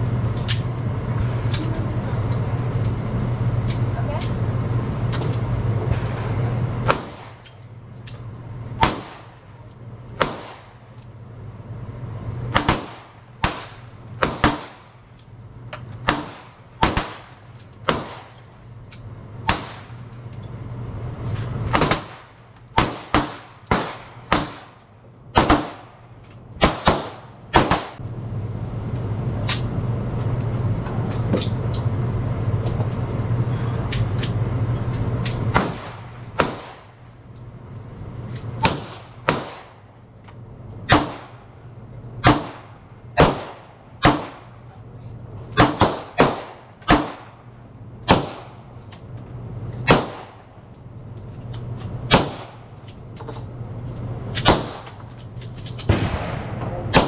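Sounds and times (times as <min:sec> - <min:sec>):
steady low rumble: 0:00.0 - 0:57.0
pistol shots: 0:06.8 - 0:07.5, 0:08.8 - 0:09.4, 0:10.2 - 0:10.8, 0:12.5 - 0:14.9, 0:16.0 - 0:18.4, 0:19.5 - 0:20.0, 0:21.7 - 0:26.0, 0:26.6 - 0:28.0, 0:35.5 - 0:37.0, 0:38.6 - 0:39.9, 0:40.8 - 0:41.4, 0:42.2 - 0:44.5, 0:45.5 - 0:47.4, 0:48.0 - 0:48.6, 0:49.8 - 0:50.5, 0:52.1 - 0:52.7, 0:54.3 - 0:55.0, 0:55.8 - 0:57.0.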